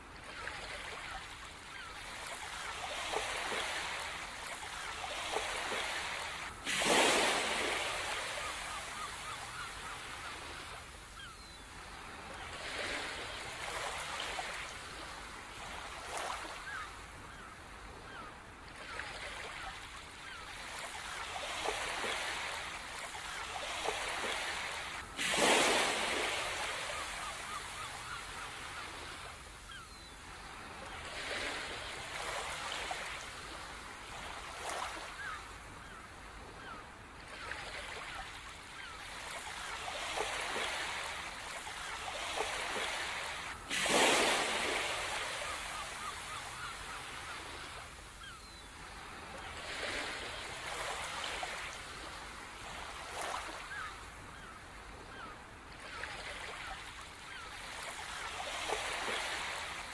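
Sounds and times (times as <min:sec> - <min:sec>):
ocean surf washing: 0:23.6 - 0:29.4.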